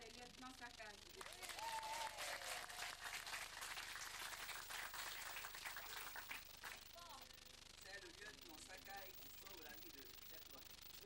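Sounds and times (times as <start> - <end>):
audience clapping: 1.2 - 6.9.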